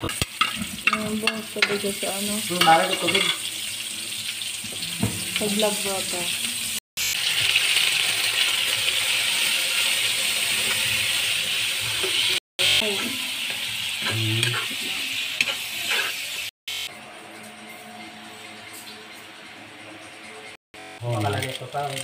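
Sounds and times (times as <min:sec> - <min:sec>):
meat sizzling in hot oil: 0:00.0 - 0:16.9.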